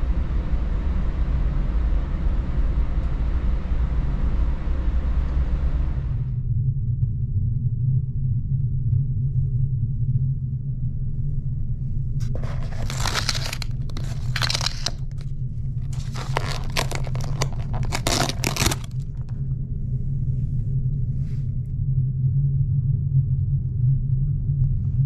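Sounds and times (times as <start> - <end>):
paper wrapping rustling: 12.2 - 15.2, 15.8 - 19.3.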